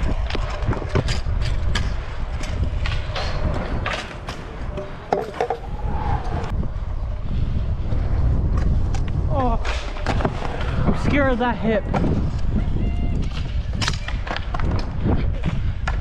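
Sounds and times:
wheels clacking over joints: 0.0s - 5.8s
scooter wheels rolling on concrete: 0.0s - 16.0s
wind rushing on microphone: 0.0s - 16.0s.

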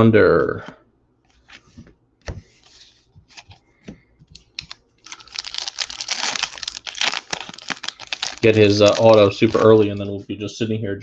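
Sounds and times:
foil pack crinkling and tearing: 4.6s - 10.2s.

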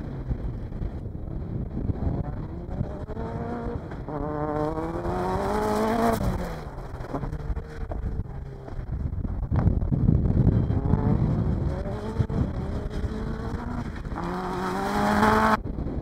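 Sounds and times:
racing car engine revving: 1.4s - 8.8s, 10.5s - 15.6s.

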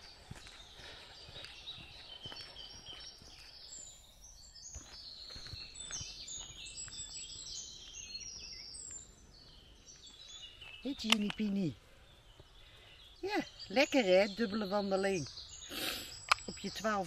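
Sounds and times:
soft footsteps on a path: 0.0s - 17.0s
songbirds singing: 0.0s - 17.0s.

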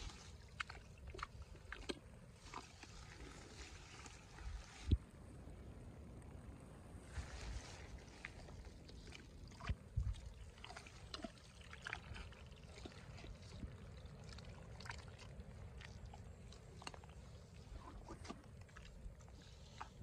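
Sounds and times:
feet squelching in mud: 0.0s - 5.0s, 7.1s - 20.0s
small wet splats: 8.0s - 20.0s.

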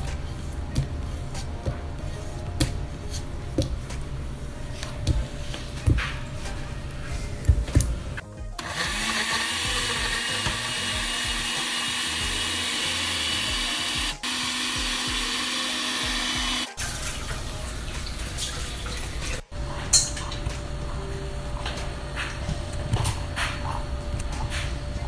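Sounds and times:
blender running: 8.6s - 16.8s.

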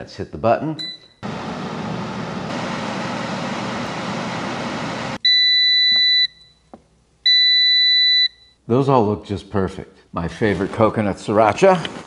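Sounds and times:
air fryer fan whooshing: 1.2s - 5.2s.

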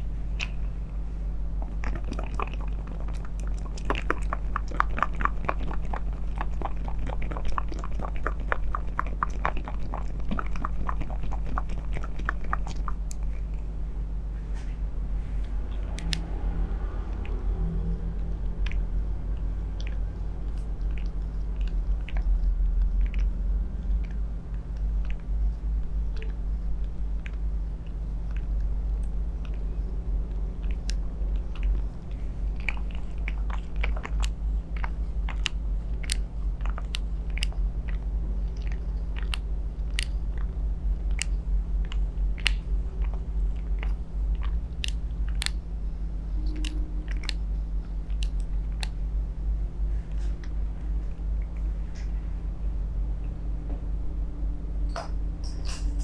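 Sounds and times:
steady low hum: 0.0s - 56.0s
facial roller clicks and crackles: 1.6s - 13.7s, 19.4s - 45.7s, 46.4s - 49.1s.

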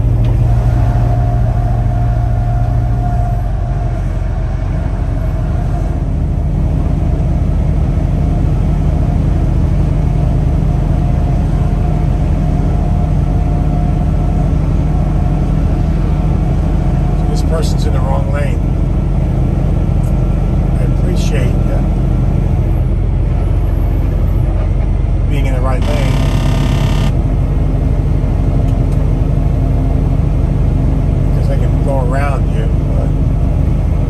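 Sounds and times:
truck diesel engine drone: 0.0s - 34.0s
thin steady whine: 25.3s - 27.5s.

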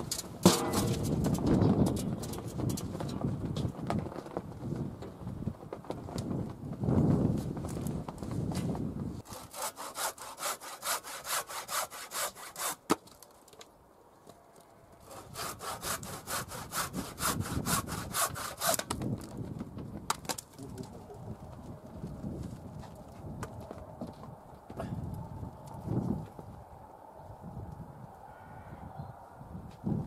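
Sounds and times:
handsaw cutting wood: 9.2s - 13.0s, 15.0s - 18.9s.

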